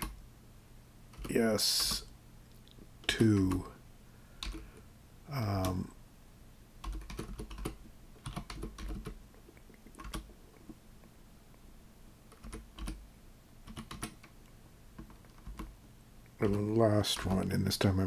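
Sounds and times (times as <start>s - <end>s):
keyboard typing: 1.1s - 2.0s, 3.1s - 3.7s, 4.4s - 4.6s, 6.8s - 10.8s, 12.3s - 13.0s, 13.6s - 14.4s, 15.0s - 15.8s, 16.4s - 17.5s.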